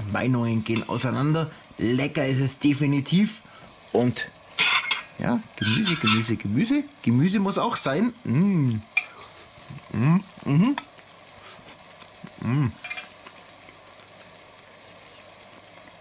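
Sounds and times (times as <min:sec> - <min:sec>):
faint steady hiss: 0:00.0 - 0:16.0
man humming or speaking: 0:08.1 - 0:08.9, 0:09.7 - 0:10.9, 0:12.2 - 0:12.8.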